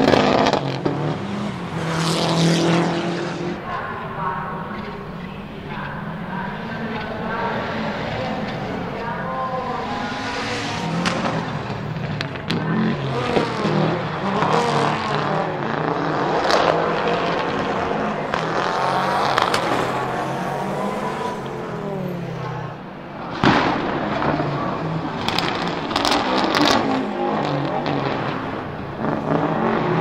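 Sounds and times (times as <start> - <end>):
rally car engine revving: 0.0 - 30.0
sharp exhaust cracks: 17.4 - 29.7.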